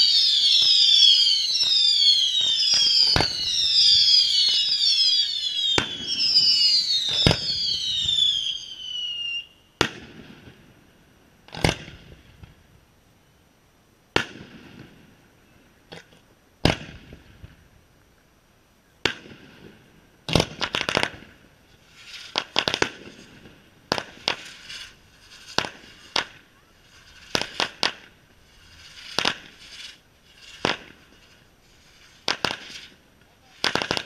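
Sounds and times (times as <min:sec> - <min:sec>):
firework shells bursting: 0:00.0 - 0:08.8, 0:19.0 - 0:34.0
firework crackle: 0:00.0 - 0:12.9, 0:14.1 - 0:18.2, 0:18.8 - 0:34.0.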